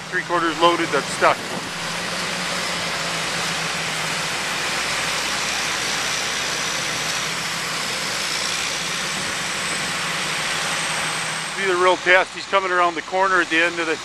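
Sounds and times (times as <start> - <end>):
truck diesel engine running: 0.0 - 14.0.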